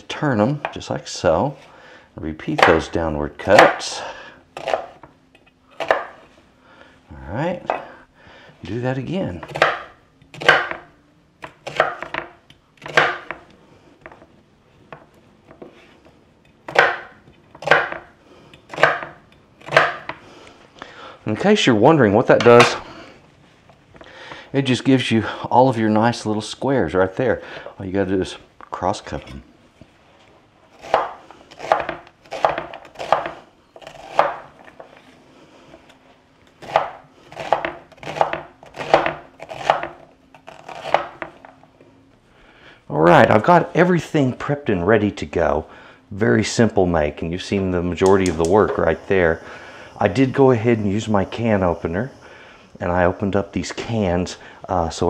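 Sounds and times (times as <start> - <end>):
knife cutting onion on wooden board: 2.5 - 4.0, 4.6 - 5.1, 5.7 - 6.3, 9.3 - 13.5, 16.6 - 20.2, 30.7 - 34.8, 36.6 - 41.5.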